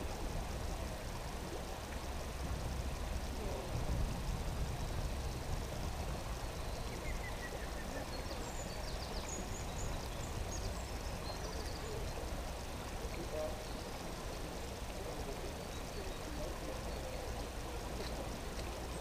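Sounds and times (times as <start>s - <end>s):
small birds chirping: 4.7s - 19.0s.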